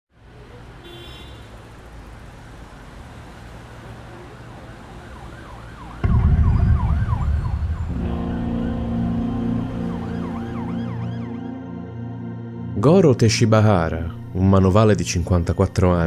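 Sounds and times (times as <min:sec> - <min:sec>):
low city rumble: 0:00.1 - 0:16.0
emergency siren warbling: 0:04.3 - 0:12.8
low music drone: 0:06.0 - 0:16.0.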